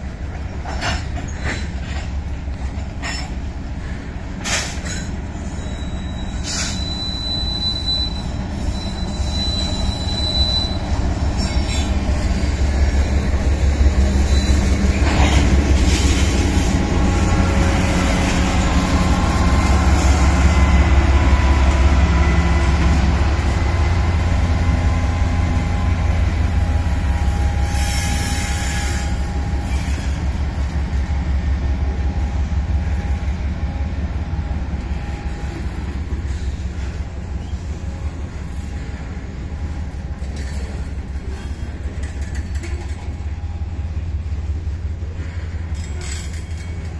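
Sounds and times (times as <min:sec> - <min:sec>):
diesel locomotive engines rumbling: 0:00.0 - 0:46.9
thin wheel squeal: 0:05.4 - 0:11.9, 0:14.1 - 0:14.8.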